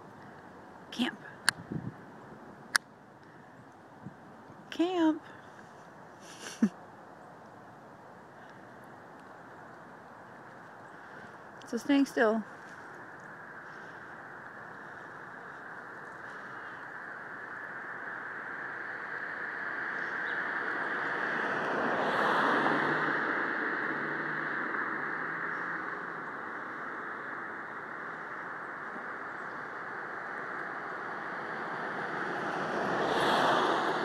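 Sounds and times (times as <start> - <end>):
vehicle approaching: 10.9 - 34.0
car driving past: 17.8 - 29.4, 30.0 - 34.0.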